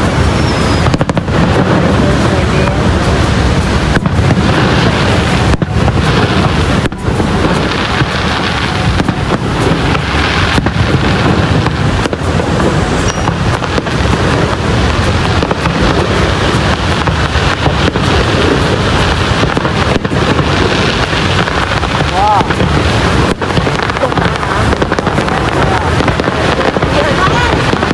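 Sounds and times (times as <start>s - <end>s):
fireworks bangs and crackle: 0.0s - 27.9s
waterfall roar: 0.0s - 27.9s.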